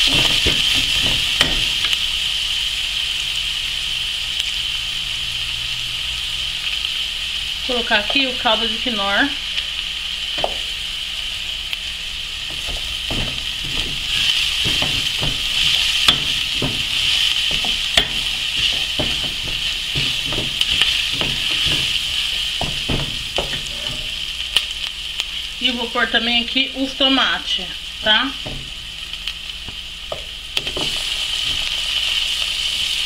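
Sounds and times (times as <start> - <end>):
onion and garlic sizzling in oil: 0.0 - 33.0
spoon scraping and knocking pot: 12.5 - 24.2.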